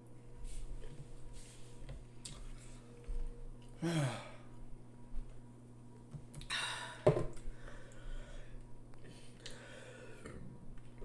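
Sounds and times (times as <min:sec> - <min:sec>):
person sighing: 0:03.8 - 0:04.5, 0:06.4 - 0:07.1
breathy exhale: 0:06.5 - 0:10.4.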